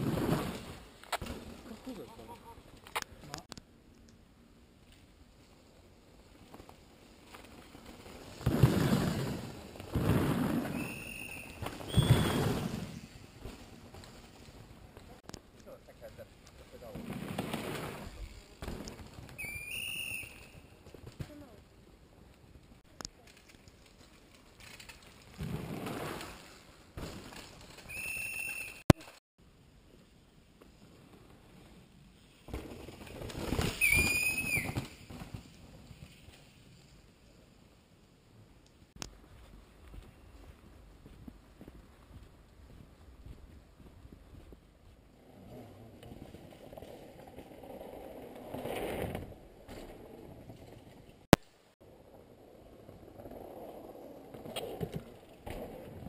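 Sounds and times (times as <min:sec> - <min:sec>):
mountain bike tyres on dirt: 0:00.0 - 0:03.6, 0:04.6 - 0:56.0
high whistle blast: 0:19.4 - 0:20.6, 0:27.9 - 0:28.8, 0:33.8 - 0:34.9.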